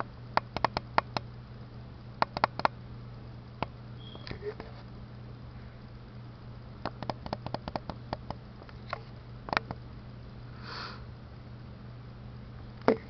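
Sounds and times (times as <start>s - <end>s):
low steady hum: 0.0s - 13.0s
soft breath: 10.5s - 11.1s.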